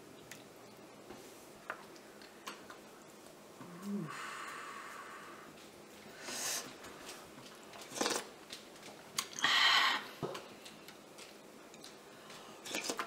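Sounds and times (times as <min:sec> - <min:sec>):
mouth clicks and chewing: 0:07.4 - 0:09.5, 0:10.4 - 0:13.0
slurping: 0:07.8 - 0:08.3.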